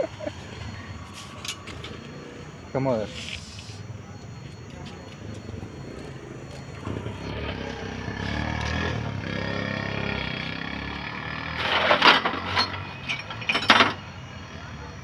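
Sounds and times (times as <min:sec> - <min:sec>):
vehicle engine running: 0:01.8 - 0:13.0
metal tools clattering: 0:11.6 - 0:14.0.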